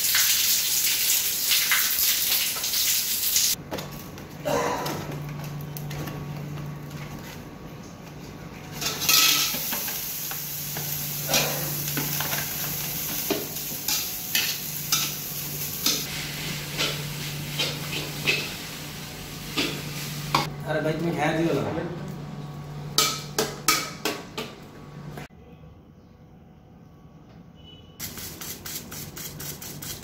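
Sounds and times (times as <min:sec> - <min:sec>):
noodles sizzling in hot oil: 0:00.0 - 0:03.6, 0:09.0 - 0:20.4.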